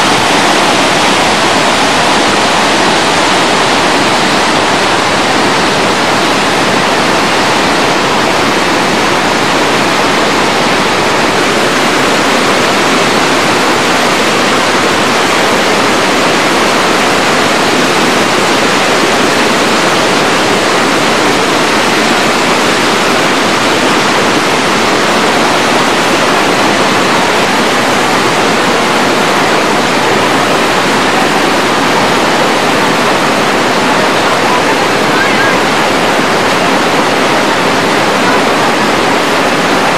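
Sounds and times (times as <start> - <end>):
river rushing over boulders: 0.0 - 39.9.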